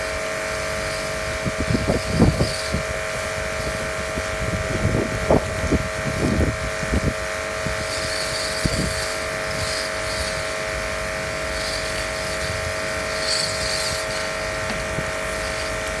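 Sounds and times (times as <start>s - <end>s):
brush scrubbing and water spraying: 0.0s - 4.0s, 7.6s - 16.0s
electric motor hum: 0.0s - 16.0s.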